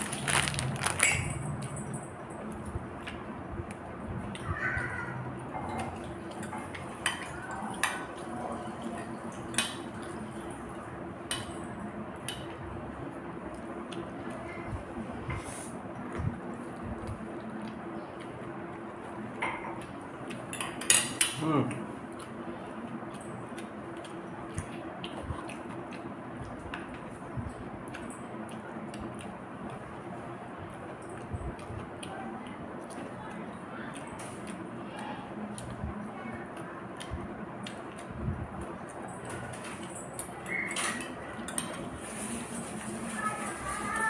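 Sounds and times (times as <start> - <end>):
person chewing food: 0.0 - 4.5, 15.3 - 20.8, 21.7 - 40.7.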